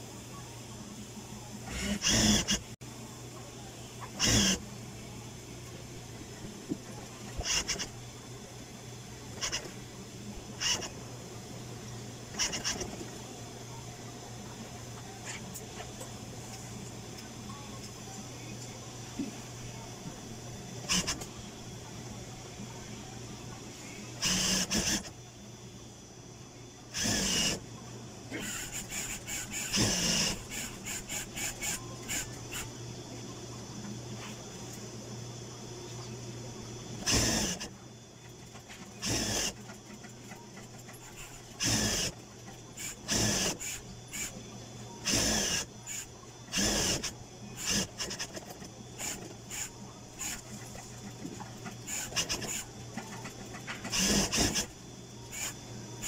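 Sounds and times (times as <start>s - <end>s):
sewing machine motor hum: 1.6s - 2.7s, 4.1s - 4.6s, 24.2s - 25.1s, 26.9s - 27.6s, 28.3s - 32.7s, 37.0s - 44.4s, 45.0s - 55.6s
sewing machine motor humming: 28.4s - 32.2s, 51.6s - 54.7s.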